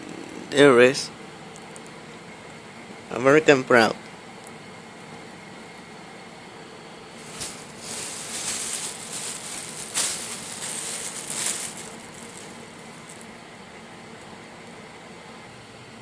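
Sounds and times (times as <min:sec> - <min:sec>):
plastic bag rustling: 0:07.1 - 0:13.4.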